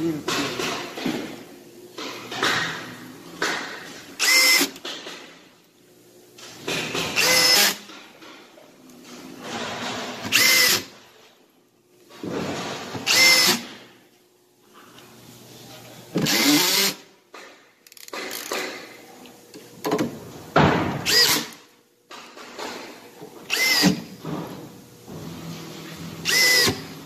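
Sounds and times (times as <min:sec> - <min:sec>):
cordless drill driving screws: 0:04.2 - 0:04.8, 0:07.2 - 0:07.8, 0:10.3 - 0:10.9, 0:13.1 - 0:13.6, 0:16.2 - 0:17.0, 0:21.0 - 0:21.6, 0:23.5 - 0:24.0, 0:26.2 - 0:26.8.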